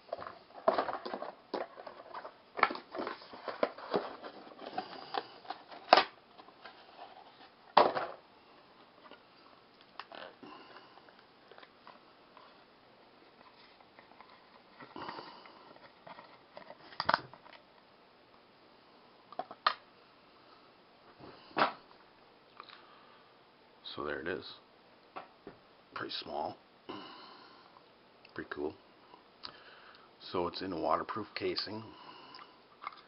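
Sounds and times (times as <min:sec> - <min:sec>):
cardboard rustling and scraping: 0:00.1 - 0:08.2.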